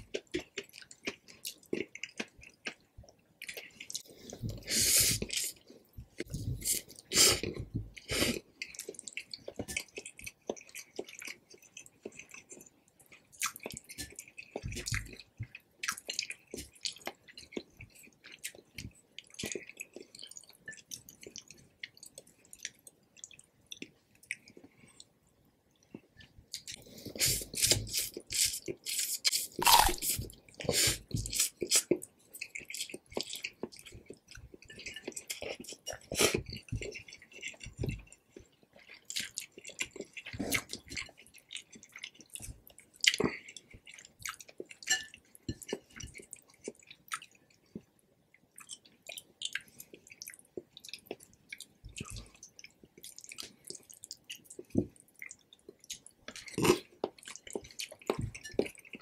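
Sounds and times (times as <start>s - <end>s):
slurping noodles: 26.9s - 31.9s.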